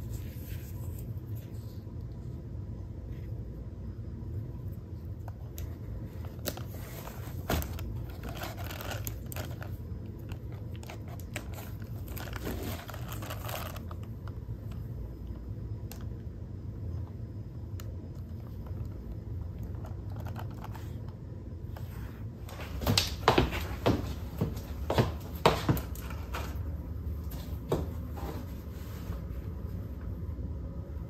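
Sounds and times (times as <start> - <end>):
steady low hum: 0.0 - 31.0
bag rustling: 11.4 - 13.9.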